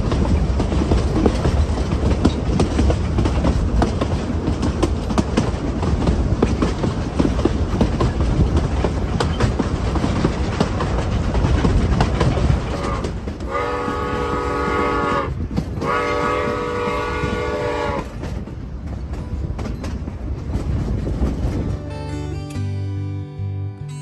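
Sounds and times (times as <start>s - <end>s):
train wheels clacking on rails: 0.0s - 22.1s
steam whistle blasts: 12.7s - 18.1s.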